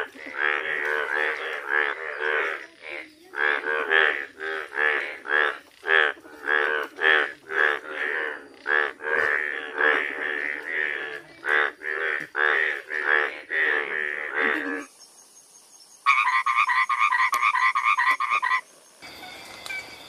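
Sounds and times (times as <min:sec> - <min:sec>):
frogs croaking in chorus: 0:00.0 - 0:15.2, 0:16.0 - 0:19.2.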